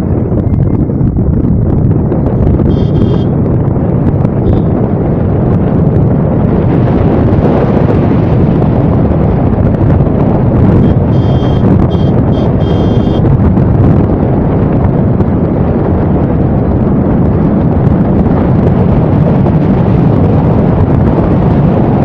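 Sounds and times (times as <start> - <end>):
car road noise: 0.0 - 22.0
wind buffeting microphone: 0.0 - 22.0
short high tone: 2.7 - 3.3, 10.8 - 13.2.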